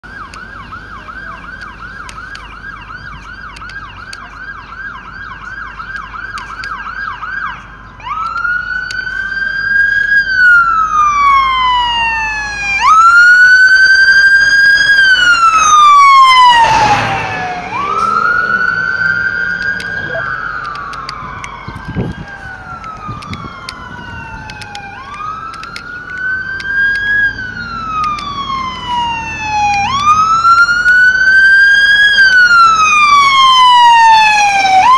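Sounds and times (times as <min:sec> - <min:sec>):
electronic siren: 0:00.0 - 0:34.9
engine and road noise: 0:00.0 - 0:34.9
second siren wailing: 0:00.0 - 0:34.9.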